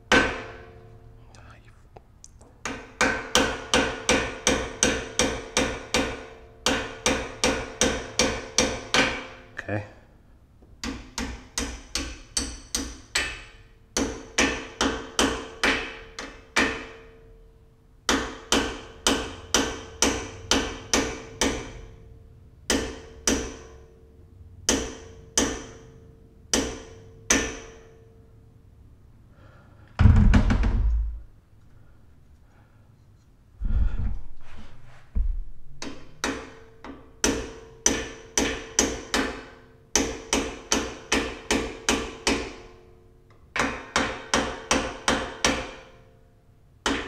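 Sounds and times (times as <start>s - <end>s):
hammer tapping metal pins: 2.5s - 9.5s, 10.8s - 17.4s, 18.0s - 22.0s, 22.6s - 24.0s, 24.6s - 28.1s, 35.8s - 46.0s.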